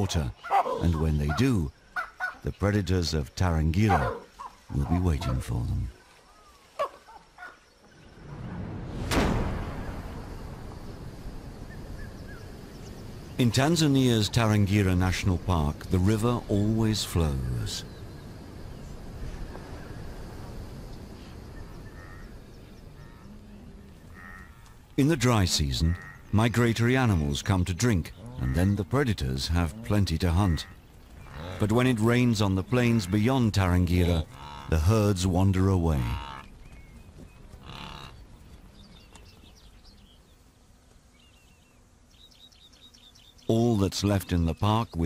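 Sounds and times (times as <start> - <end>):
faint animal calls: 3.8 - 7.7, 21.6 - 24.8
wildebeest lowing grunts: 28.2 - 28.8.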